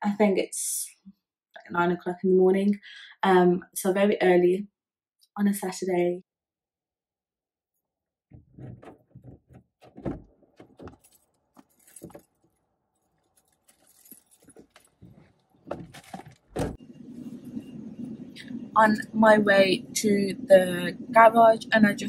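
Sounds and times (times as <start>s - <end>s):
heavy thump: 8.3s - 11.1s, 15.0s - 16.8s
knocks and bumps: 8.3s - 12.5s, 13.4s - 16.8s
clothes rustling: 8.3s - 16.8s
keys jangling: 10.6s - 15.3s.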